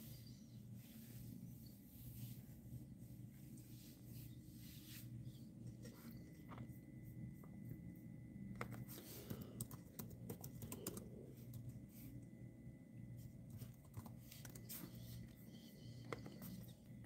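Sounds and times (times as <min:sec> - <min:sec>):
low steady hum: 0:00.0 - 0:17.0
laptop keyboard typing: 0:08.6 - 0:11.8, 0:13.5 - 0:15.3.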